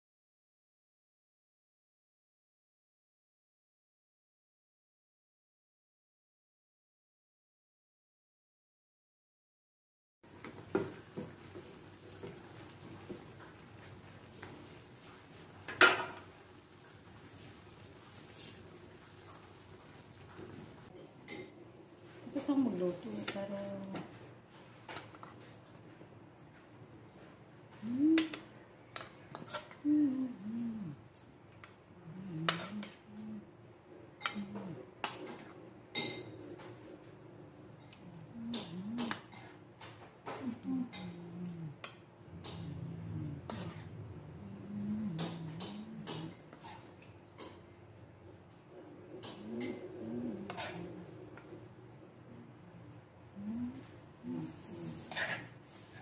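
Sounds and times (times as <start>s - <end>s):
spatula scraping wok: 29.0s - 29.8s, 32.4s - 33.1s, 39.0s - 39.6s, 41.8s - 44.4s, 45.2s - 47.6s, 49.2s - 51.8s, 54.3s - 56.0s.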